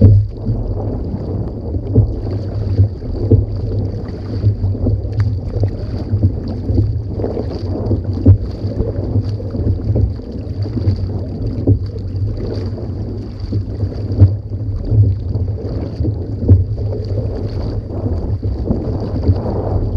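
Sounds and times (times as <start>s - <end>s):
paddle blades dipping: 0.0s - 19.9s
water splashing along kayak hull: 0.0s - 19.9s
wind rumble on microphone: 0.0s - 19.9s.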